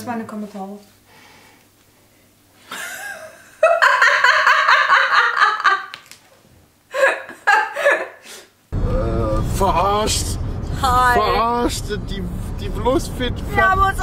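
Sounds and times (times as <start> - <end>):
woman laughing loudly: 2.7 - 6.0, 6.9 - 8.3.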